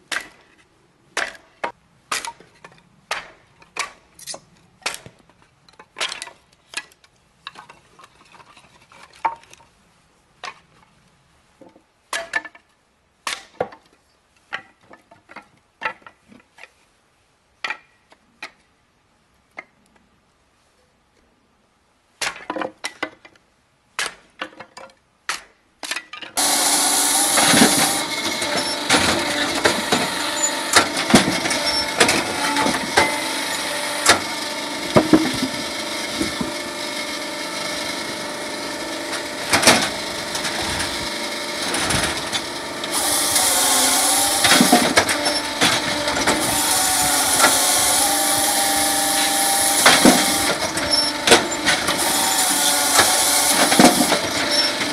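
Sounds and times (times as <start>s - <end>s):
logs clattering: 25.8s - 54.9s
hammer striking wood: 26.4s - 36.6s
firewood processor running: 26.4s - 54.9s.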